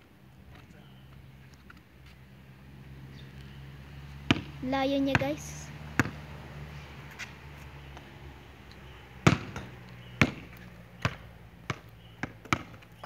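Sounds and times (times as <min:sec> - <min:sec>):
basketball bouncing on concrete: 0:04.2 - 0:06.2, 0:09.2 - 0:13.0.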